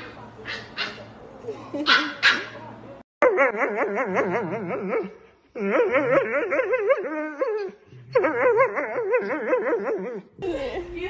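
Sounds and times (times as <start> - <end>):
dog whining: 3.2 - 10.3.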